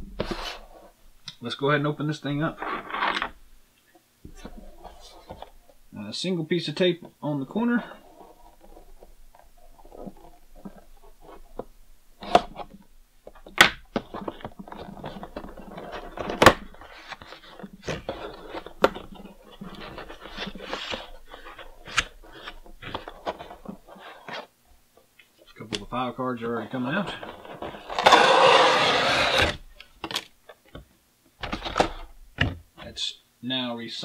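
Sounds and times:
cardboard rustling and scraping: 0.0 - 1.0, 2.2 - 3.4, 4.3 - 5.7, 6.8 - 24.5, 25.4 - 30.8.

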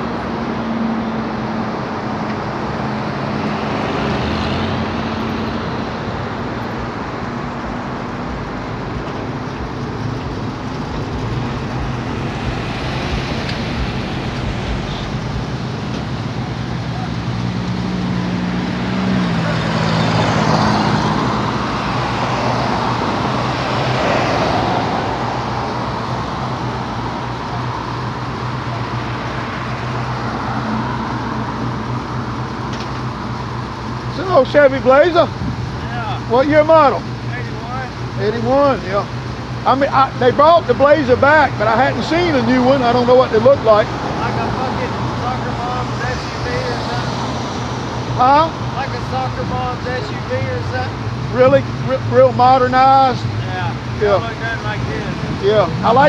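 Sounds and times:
cars passing: 0.0 - 56.0
low engine hum: 0.0 - 56.0.

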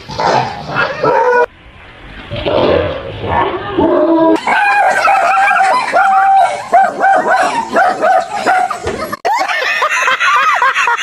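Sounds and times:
dog barking and yelping: 0.2 - 1.5, 4.4 - 8.9.

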